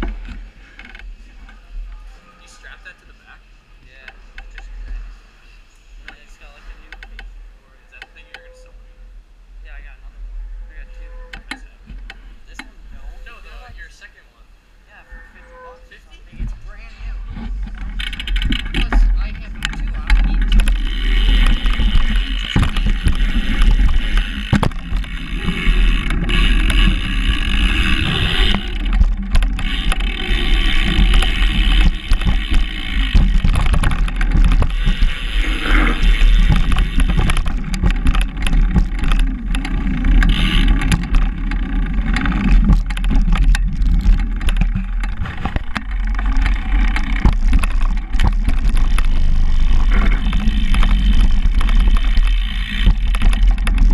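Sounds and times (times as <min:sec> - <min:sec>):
bicycle tyres rolling rumble: 0:00.0 - 0:53.9
wheels knocking on boards: 0:17.3 - 0:53.9.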